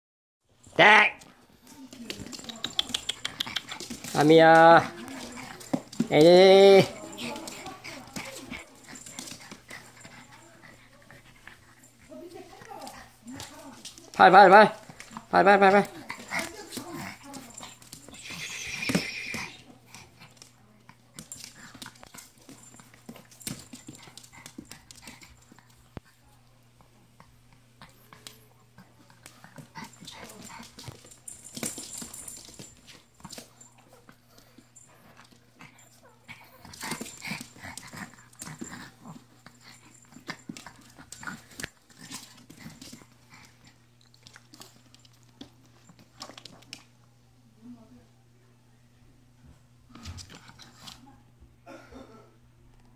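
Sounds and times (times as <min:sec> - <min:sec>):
dog claws clicking on floor: 0:01.2 - 0:10.4, 0:12.3 - 0:26.1, 0:29.0 - 0:33.8, 0:36.4 - 0:47.0.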